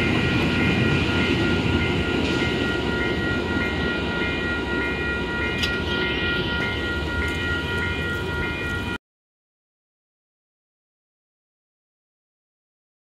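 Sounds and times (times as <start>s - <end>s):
crossing warning bells ringing: 0.0s - 9.0s
train rumbling: 0.0s - 9.0s.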